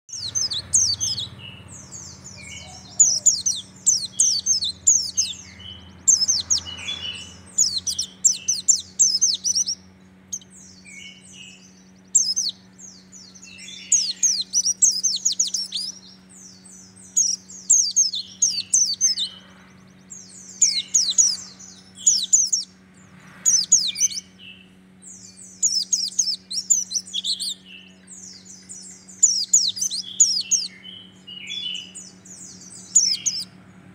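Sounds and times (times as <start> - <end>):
bird twittering: 0.1 - 33.6
steady low hum: 0.1 - 33.9.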